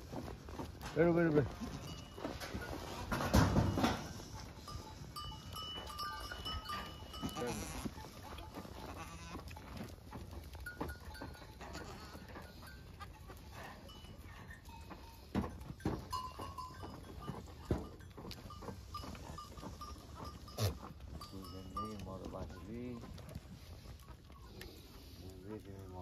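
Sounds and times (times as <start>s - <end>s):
goats bleating: 1.5s - 3.4s, 4.1s - 9.9s, 10.6s - 13.7s, 18.8s - 21.3s.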